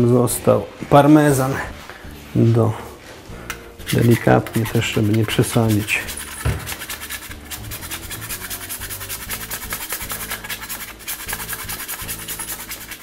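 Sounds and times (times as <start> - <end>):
cheese grating on hand grater: 3.8 - 13.0.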